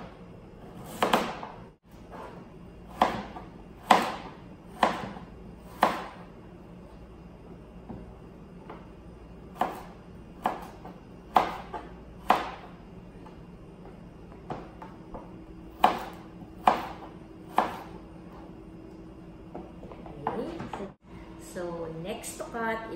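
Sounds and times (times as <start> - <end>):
knife slicing carrot on board: 0.6 - 1.5, 15.7 - 18.0.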